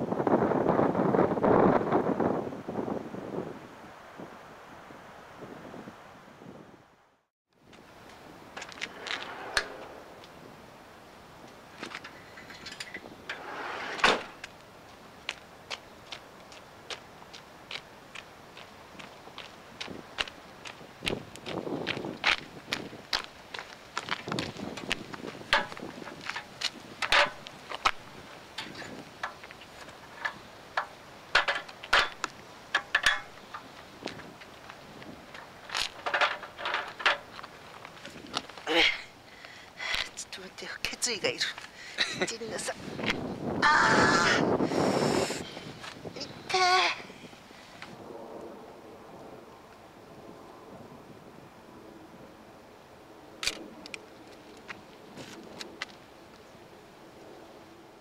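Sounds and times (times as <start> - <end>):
sliding van door opening: 8.6 - 10.2, 13.3 - 14.5
stepladder rattling and clanking: 25.5 - 27.5, 30.1 - 33.3, 35.7 - 37.4.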